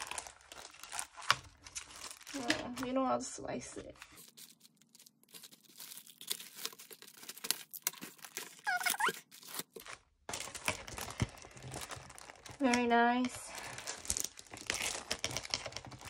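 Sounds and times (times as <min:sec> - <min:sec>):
plastic packaging crinkling: 0:00.0 - 0:16.0
tape tearing off cardboard: 0:05.4 - 0:09.8
short squeak: 0:08.6 - 0:09.2.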